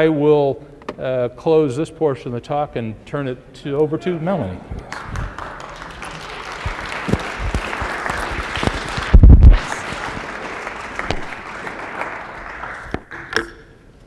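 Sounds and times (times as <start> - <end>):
audience applauding: 4.8 - 13.3.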